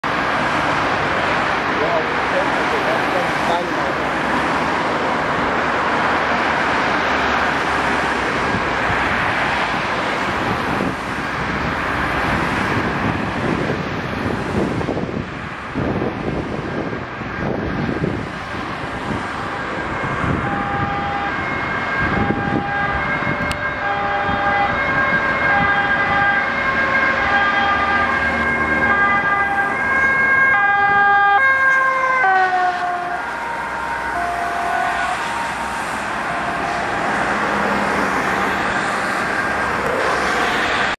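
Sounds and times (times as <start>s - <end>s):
passing road traffic: 0.0s - 40.9s
ambulance two-tone siren: 19.0s - 40.9s.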